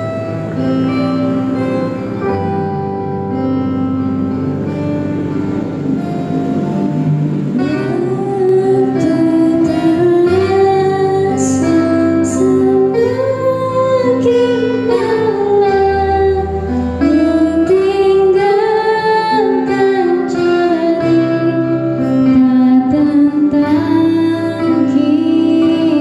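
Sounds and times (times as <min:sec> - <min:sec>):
acoustic guitars: 0:00.0 - 0:26.0
girl singing into a microphone: 0:07.6 - 0:26.0.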